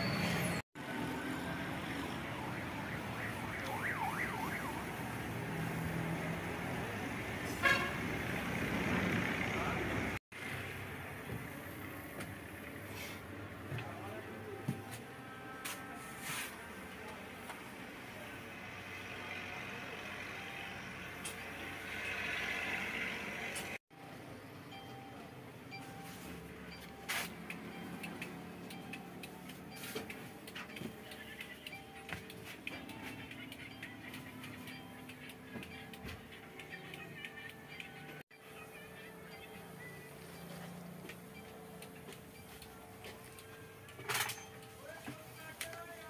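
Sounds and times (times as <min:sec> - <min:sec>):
warbling siren-like tone: 0:01.4 - 0:05.2.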